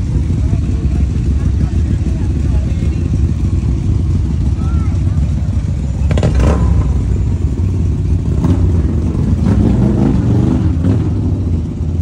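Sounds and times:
low engine rumble: 0.0 - 12.0.

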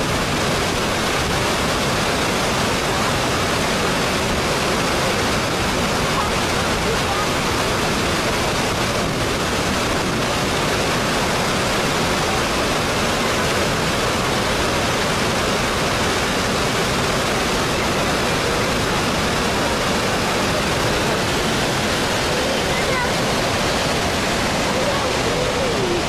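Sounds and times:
water rushing over weir: 0.0 - 26.0.

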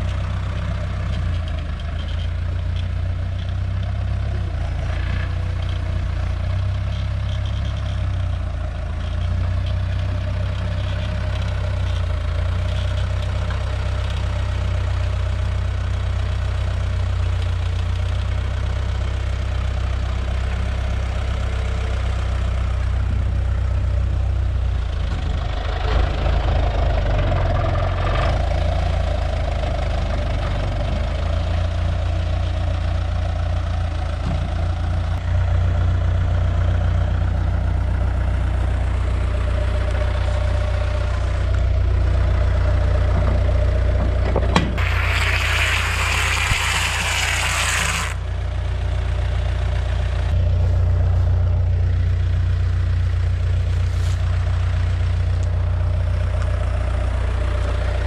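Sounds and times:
tractor diesel engine idling: 0.0 - 44.7, 48.2 - 58.0
bale wrapper hum: 44.8 - 48.2
loud hiss: 44.8 - 48.2.

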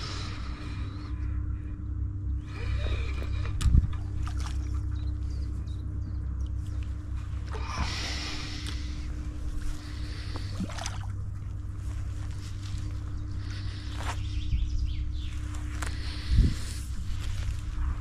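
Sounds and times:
steady low rumble: 0.0 - 18.0
water splashing: 10.2 - 11.2.

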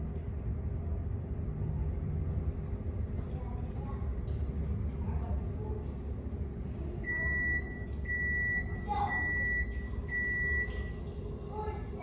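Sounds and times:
steady low rumble: 0.0 - 12.0
appliance beeping: 7.0 - 11.0.

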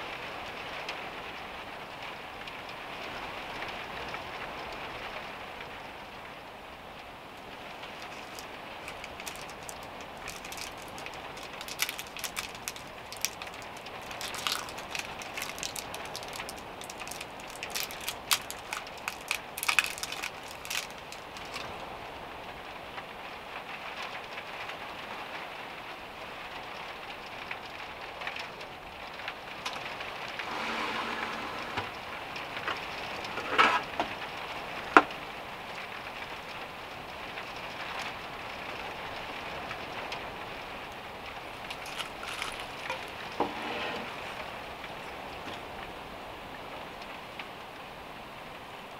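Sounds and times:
metal utensil scraping pan: 30.4 - 32.0, 42.8 - 44.3.

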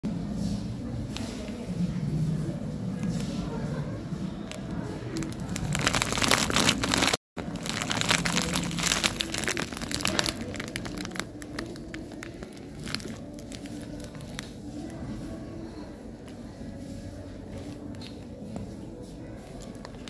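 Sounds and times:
plastic bag crinkling: 4.4 - 15.0.

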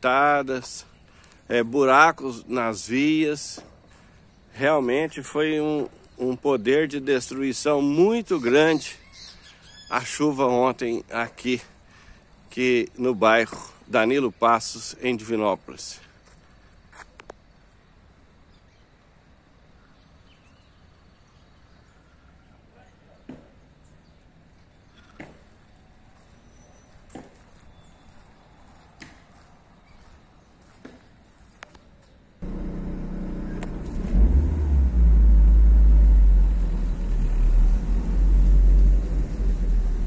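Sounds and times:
faint outdoor ambience: 0.0 - 40.0
faint bird chirps: 8.2 - 10.2
car engine and road noise: 32.4 - 40.0
heavy low rumble: 32.4 - 40.0.

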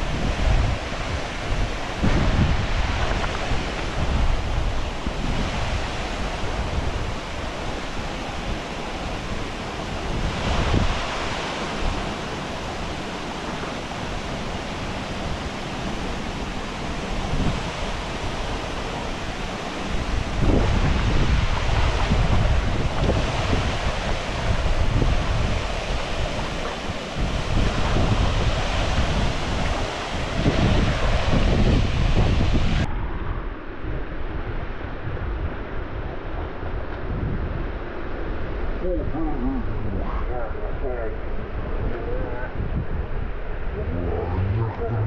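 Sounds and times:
river water pouring over weir: 0.0 - 32.9
wind buffeting microphone: 0.0 - 45.0.

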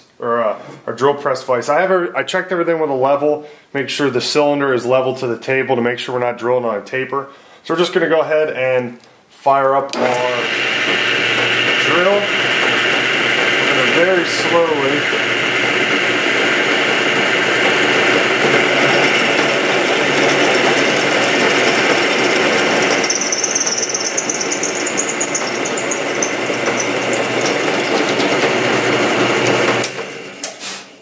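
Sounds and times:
high whine of metal cutting: 10.0 - 30.4
drill press running: 10.0 - 30.6.

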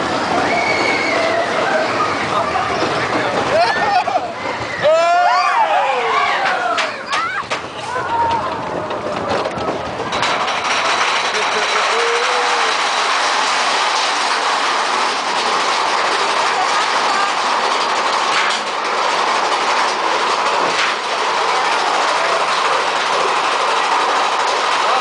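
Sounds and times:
roller coaster rattling on track: 0.0 - 25.0
sharp clacks: 8.3 - 25.0.

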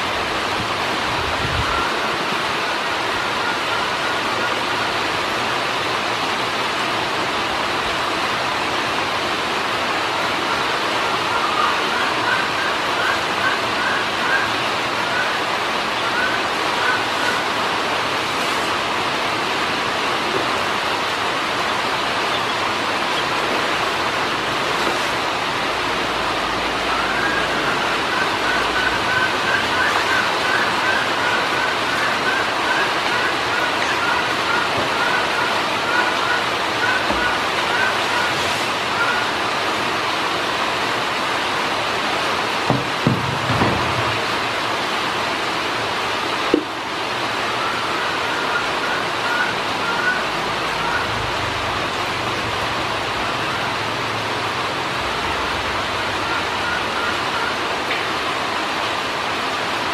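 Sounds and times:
steady rushing hiss: 0.0 - 59.9
ducklings peeping: 21.6 - 23.7.

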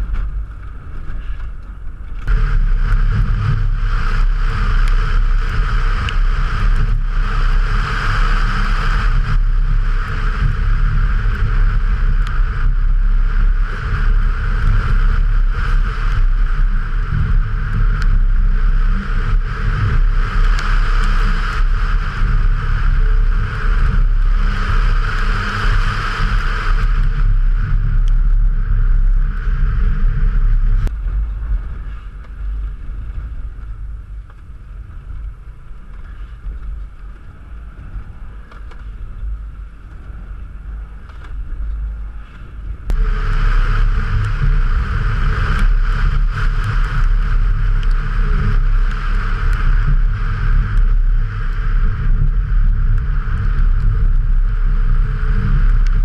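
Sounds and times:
wind and water spray: 0.0 - 56.0
car engine running hard: 1.9 - 31.3, 42.8 - 56.0.

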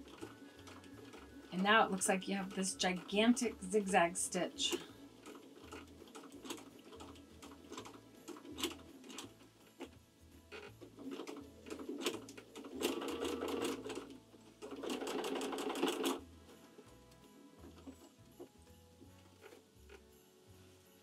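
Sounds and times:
sewing machine stitching: 0.0 - 16.2.

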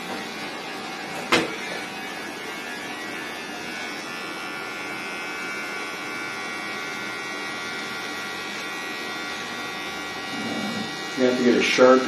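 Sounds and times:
electric hair clippers humming: 0.0 - 12.0.

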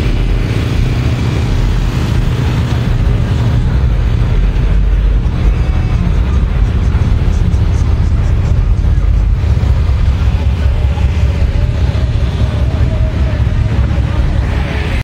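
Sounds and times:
car engine running: 0.0 - 15.0.

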